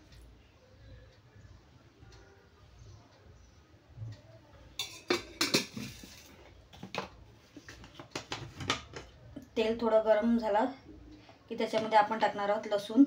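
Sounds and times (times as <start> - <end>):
metal utensils clinking: 4.8 - 6.5.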